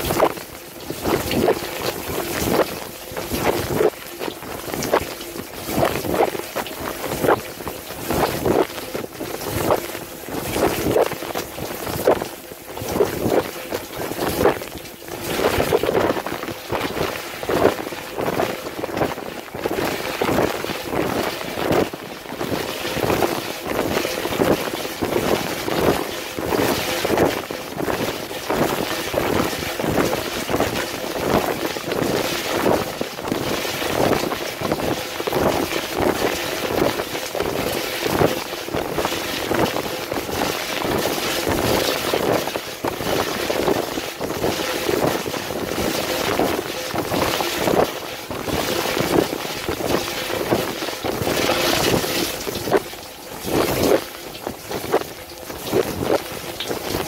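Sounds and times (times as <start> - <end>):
dishwasher water jets splashing: 0.0 - 57.0.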